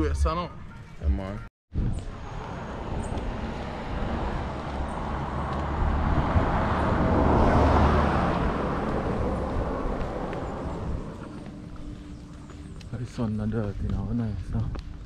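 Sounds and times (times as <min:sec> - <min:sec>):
car passing: 0:01.9 - 0:13.6.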